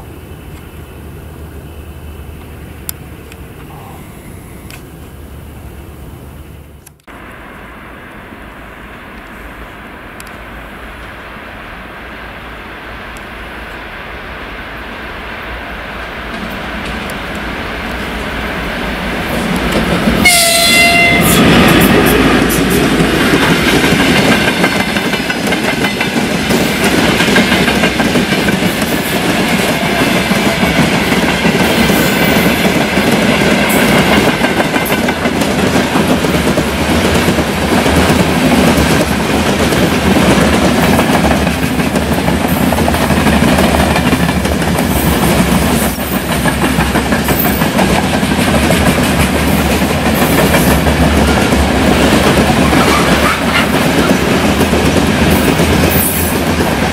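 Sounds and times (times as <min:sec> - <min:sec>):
freight train wheels clattering: 0:16.1 - 0:56.9.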